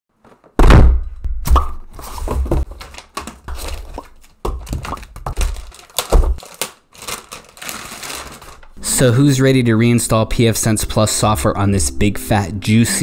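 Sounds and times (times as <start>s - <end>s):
paper and foam shuffling: 1.9s - 8.8s
plastic crinkling: 2.6s - 8.8s.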